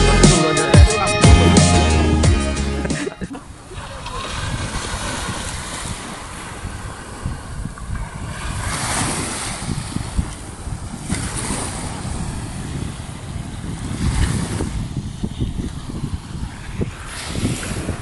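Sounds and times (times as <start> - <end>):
wind buffeting microphone: 3.2 - 18.0
waves washing on sand: 3.3 - 18.0.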